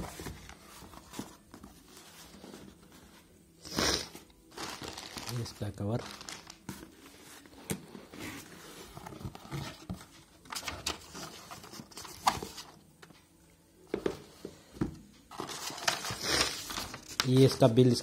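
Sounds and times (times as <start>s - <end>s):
paper rustling: 4.6s - 12.7s, 15.3s - 17.7s.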